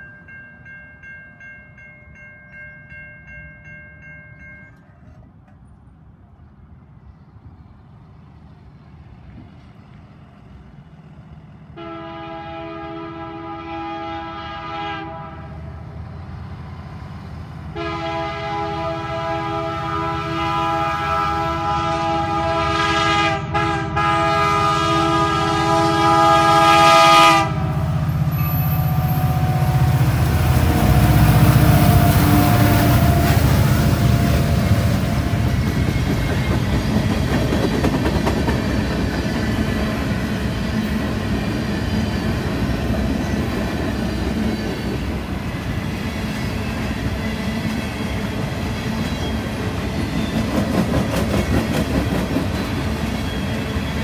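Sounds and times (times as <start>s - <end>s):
locomotive air horn: 11.8s - 15.8s, 17.7s - 33.7s
locomotive engine rumble: 15.4s - 54.0s
train cars clickety-clack: 28.2s - 54.0s.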